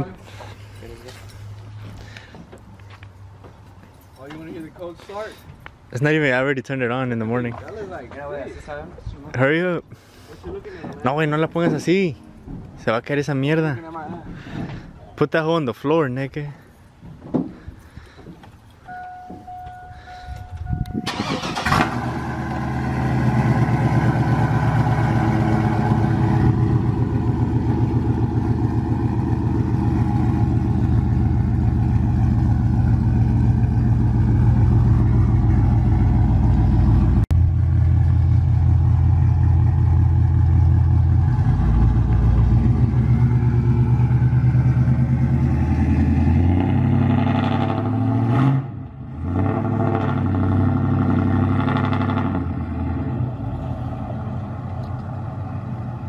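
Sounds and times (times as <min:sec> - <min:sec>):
pickup truck engine idling: 0:20.8 - 0:22.8, 0:23.7 - 0:45.4.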